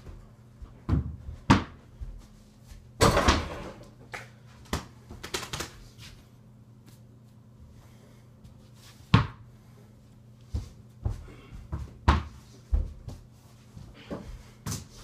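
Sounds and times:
ball bouncing on floor: 0:00.0 - 0:01.8, 0:09.1 - 0:09.4, 0:10.5 - 0:12.9.

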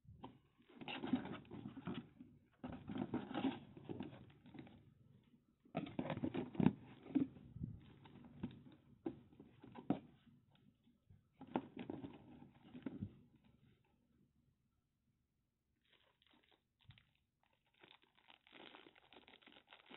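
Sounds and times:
rustling in cardboard box: 0:00.6 - 0:04.8.

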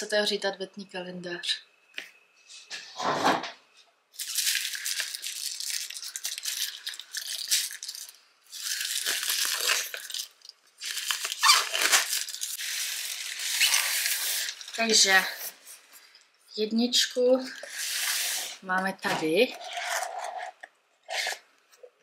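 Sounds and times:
plastic wrap crinkling: 0:04.2 - 0:16.2.

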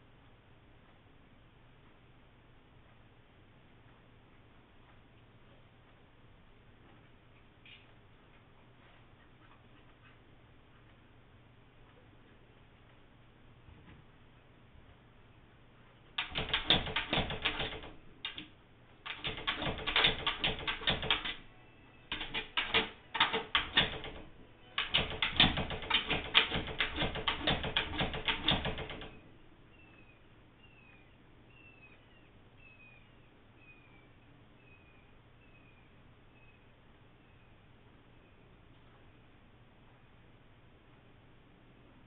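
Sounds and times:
dogs scratching at glass door: 0:16.2 - 0:18.4, 0:19.1 - 0:21.4, 0:22.1 - 0:24.2, 0:24.8 - 0:29.1.

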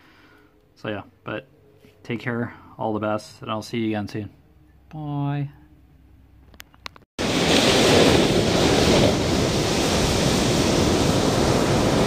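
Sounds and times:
waves breaking on beach: 0:07.2 - 0:12.0.

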